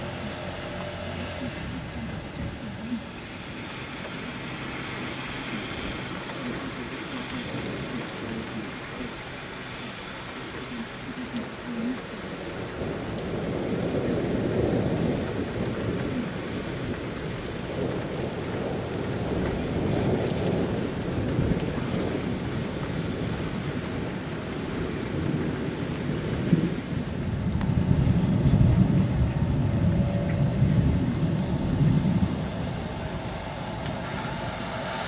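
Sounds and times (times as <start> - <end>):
rain on wet pavement: 0.0 - 35.0
thunder rumbling: 0.0 - 35.0.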